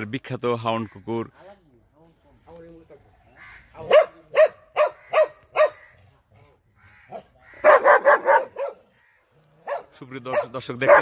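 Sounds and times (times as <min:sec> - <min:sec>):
dog barking: 0:03.8 - 0:05.9, 0:07.1 - 0:08.9, 0:09.6 - 0:11.0.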